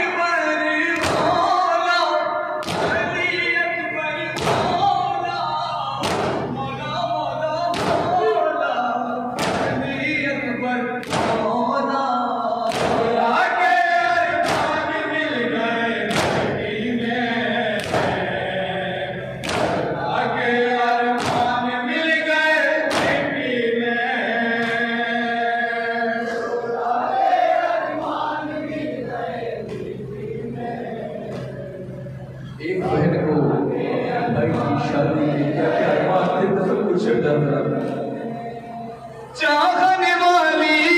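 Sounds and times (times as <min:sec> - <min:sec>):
men chanting in chorus: 0:00.0 - 0:40.9
hands slapping on chests: 0:19.4 - 0:19.9.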